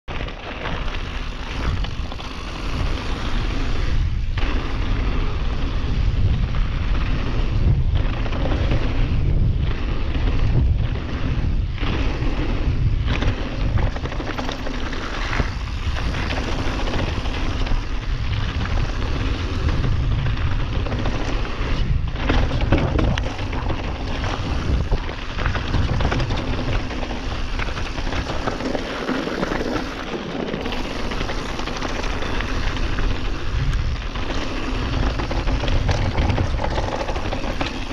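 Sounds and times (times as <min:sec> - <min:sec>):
bike tyres rolling over gravel: 0:00.1 - 0:37.9
wind rumble on microphone: 0:00.1 - 0:37.9.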